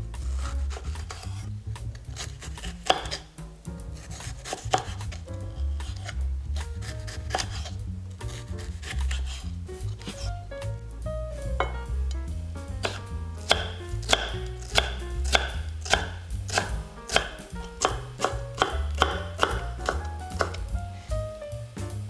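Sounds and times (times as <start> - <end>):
background music: 0.0 - 22.0
knife chopping on cutting board: 0.3 - 1.4, 2.1 - 3.3, 4.0 - 5.2, 5.8 - 10.3, 12.8 - 20.7.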